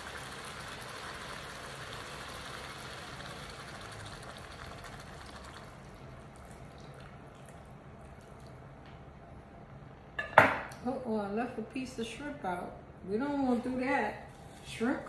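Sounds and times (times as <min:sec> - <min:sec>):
liquid hissing in hot pan: 0:00.0 - 0:05.8.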